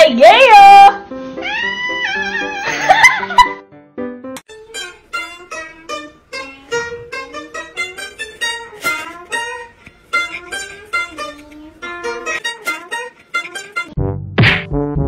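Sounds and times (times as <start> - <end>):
plucked-string melody: 4.0 - 14.6.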